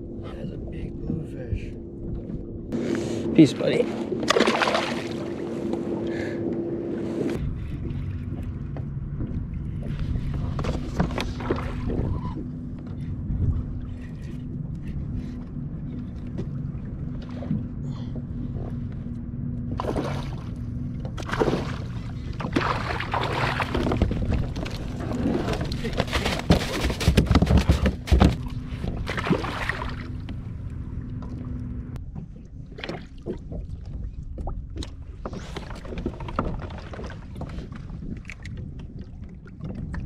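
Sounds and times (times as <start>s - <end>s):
wind: 0.0s - 40.0s
water lapping against kayak hull: 1.9s - 40.0s
knocks and splashes: 4.0s - 5.8s, 7.6s - 14.4s, 19.8s - 30.4s, 32.1s - 40.0s.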